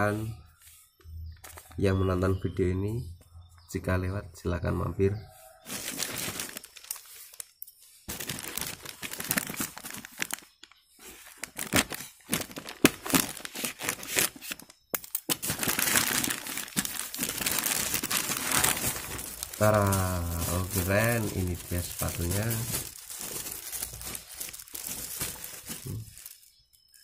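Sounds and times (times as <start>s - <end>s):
plastic mailer bag crinkling: 5.6s - 7.5s, 8.1s - 27.0s.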